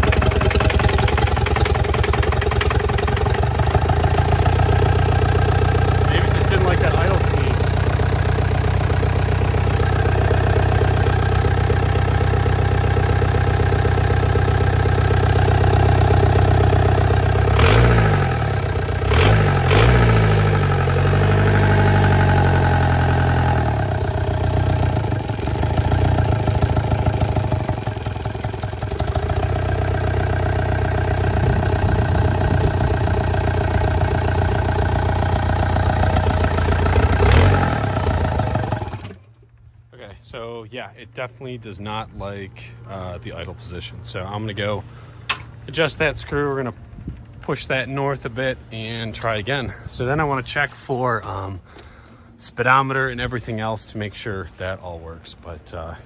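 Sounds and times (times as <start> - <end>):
diesel engine idling: 0.0 - 39.2
engine revving: 0.0 - 39.2.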